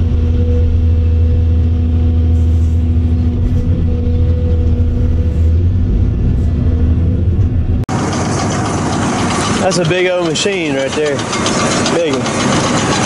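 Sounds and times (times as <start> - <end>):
excavator diesel engine droning: 0.0 - 13.0.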